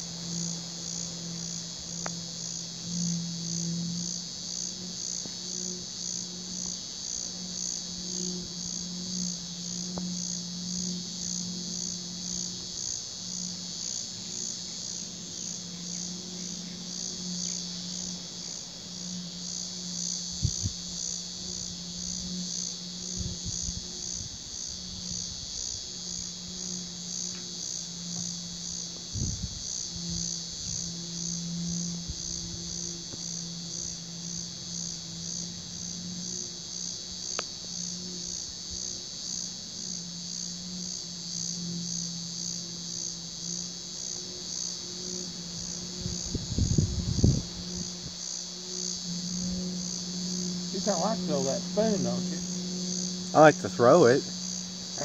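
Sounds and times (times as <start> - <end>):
crickets trilling: 0.0 - 55.0
low steady hum: 0.0 - 55.0.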